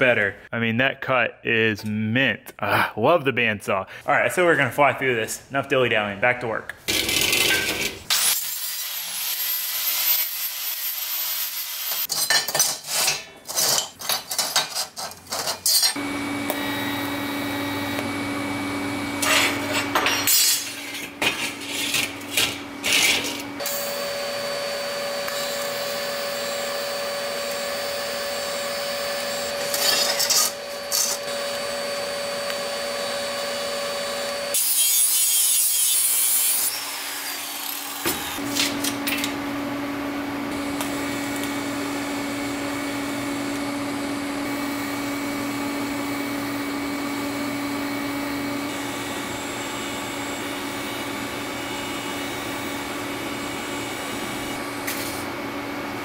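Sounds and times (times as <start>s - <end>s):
welding arc buzzing and hissing: 6.9s - 12.1s, 15.8s - 39.0s, 40.5s - 55.3s.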